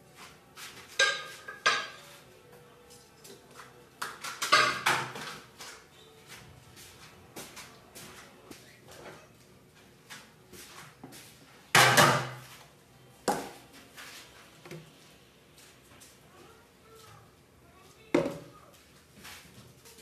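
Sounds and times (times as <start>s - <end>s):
cookware knocks and taps: 1.0s - 2.0s, 4.0s - 5.4s, 11.7s - 12.4s, 18.2s - 18.5s.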